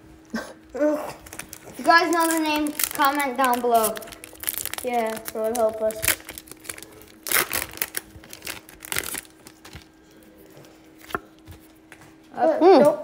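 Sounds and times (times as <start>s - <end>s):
foil wrapper tearing and crinkling: 1.1s - 10.0s
cards being handled: 1.3s - 10.0s, 10.6s - 12.2s.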